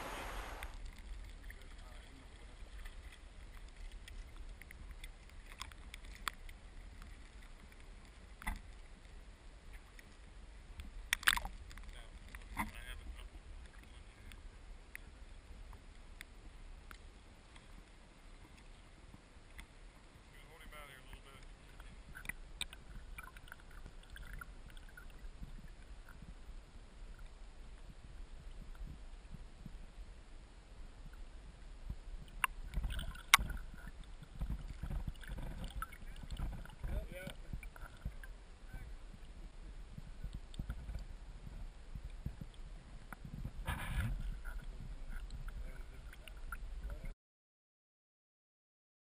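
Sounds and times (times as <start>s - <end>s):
low rumble: 0.0s - 0.8s
small water splashes: 0.0s - 9.1s, 11.0s - 14.4s, 16.9s - 26.4s, 32.2s - 39.4s, 42.0s - 47.1s
water lapping and trickling: 0.0s - 47.1s
faint clicks: 0.1s - 9.1s, 10.8s - 12.8s, 21.1s - 26.2s.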